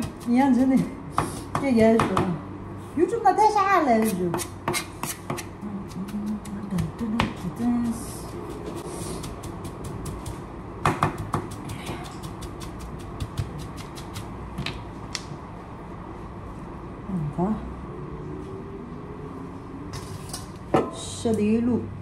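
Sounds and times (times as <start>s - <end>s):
knife chopping on cutting board: 4.0s - 14.3s.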